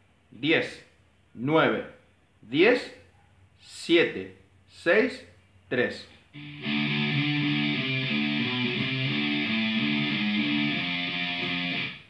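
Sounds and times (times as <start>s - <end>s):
electric guitar chord riff: 6.4s - 12.0s.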